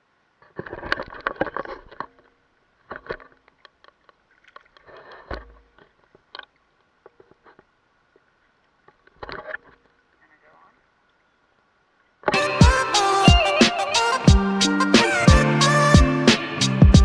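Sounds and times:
water splashing and sloshing: 0:00.6 - 0:10.1.

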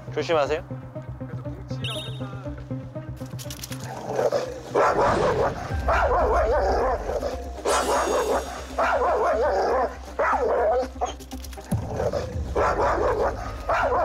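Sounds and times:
large dog barking: 0:03.9 - 0:11.2, 0:11.8 - 0:14.0.

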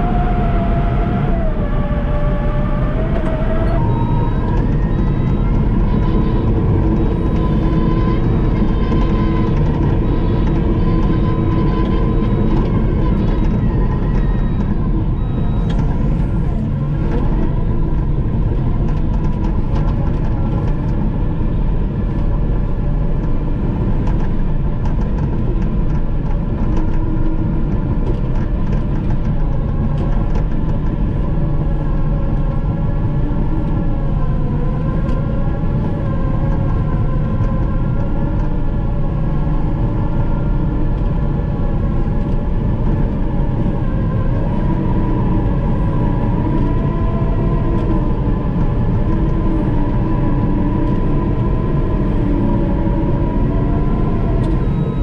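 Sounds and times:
diesel engine running: 0:00.0 - 0:55.0
wavering whine: 0:00.0 - 0:55.0.

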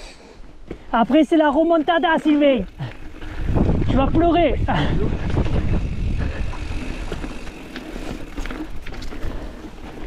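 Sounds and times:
bike clicks and rattles: 0:01.1 - 0:10.0
wind rumbling on microphone: 0:02.7 - 0:10.0.

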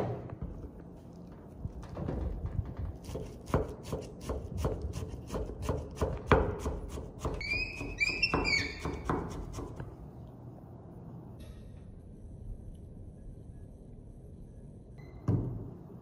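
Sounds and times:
knife chopping on wooden board: 0:03.0 - 0:08.0, 0:08.7 - 0:09.8
short high-pitched squeaks: 0:07.4 - 0:09.0.

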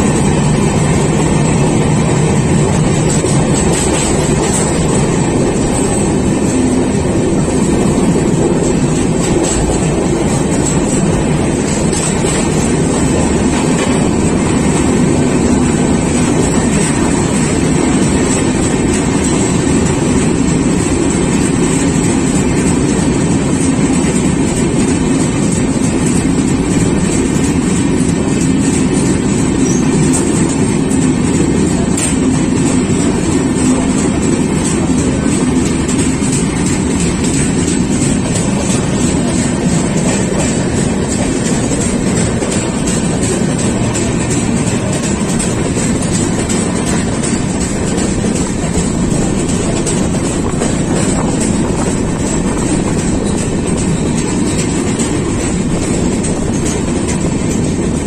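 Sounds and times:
train rumbling at speed: 0:00.0 - 0:58.0.

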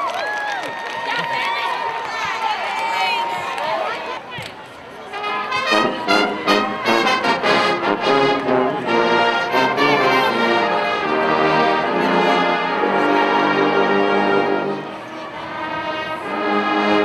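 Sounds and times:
marching band brass chorus: 0:05.0 - 0:17.0.

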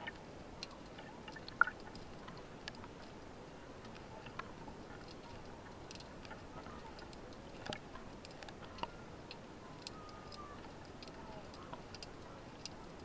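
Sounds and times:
faint steady hiss: 0:00.0 - 0:13.0
underwater clicks and ticks: 0:00.0 - 0:13.0.

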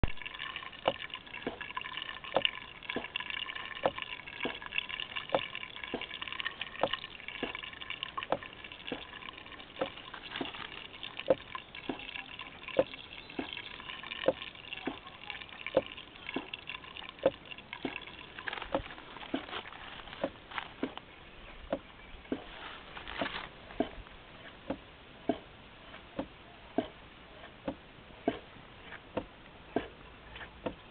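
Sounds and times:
water splashing into plastic bowl: 0:00.0 - 0:21.0
pump sharp clicks: 0:00.0 - 0:30.9.

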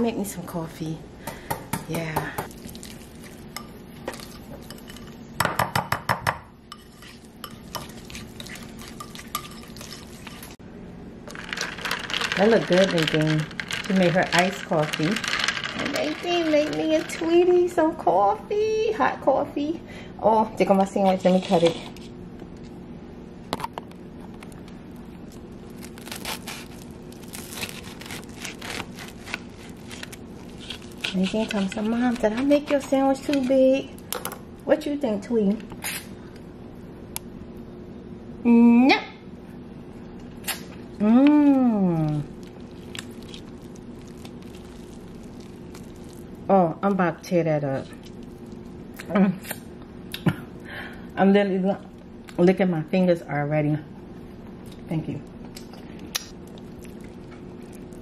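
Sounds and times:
whisk clinking against bowl: 0:06.7 - 0:10.5.

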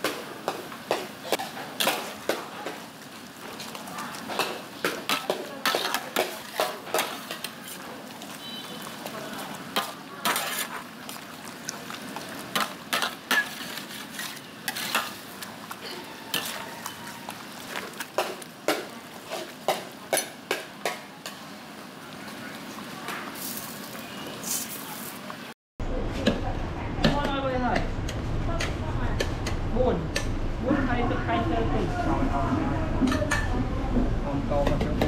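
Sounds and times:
frying hiss: 0:00.0 - 0:25.6
metal utensils scraping a wok: 0:03.4 - 0:11.2, 0:12.3 - 0:20.4.

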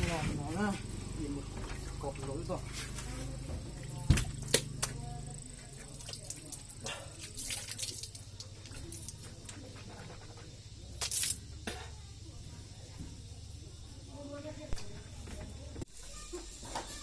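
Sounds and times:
water sloshing and dripping: 0:01.5 - 0:09.8.

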